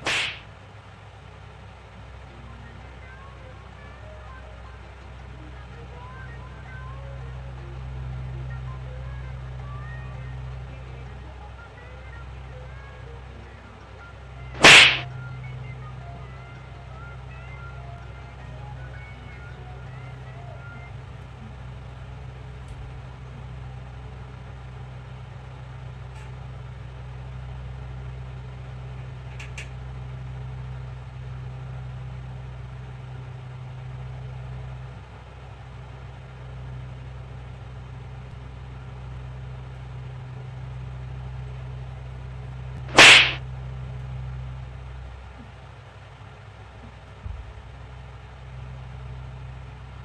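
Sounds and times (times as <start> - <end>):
hand slap: 0.0 - 0.4, 14.6 - 15.1, 42.8 - 43.4
steady low hum: 0.0 - 24.1, 38.2 - 50.0.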